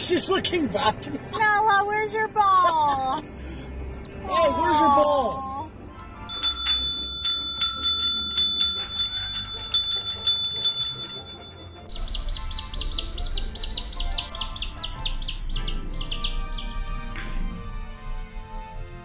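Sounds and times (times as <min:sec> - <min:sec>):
service bell dinging: 0:06.3 - 0:11.9
high-pitched chirps: 0:11.8 - 0:16.8.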